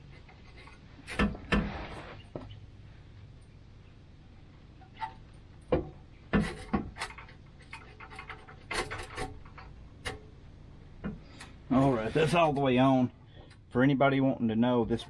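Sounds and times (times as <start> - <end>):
metal pipe scraping and knocking: 4.8 - 10.2.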